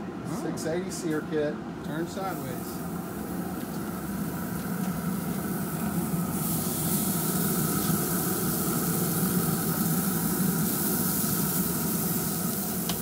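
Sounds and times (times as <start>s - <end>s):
low mechanical hum: 0.0s - 13.0s
fish sizzling on a hot plate: 3.5s - 13.0s.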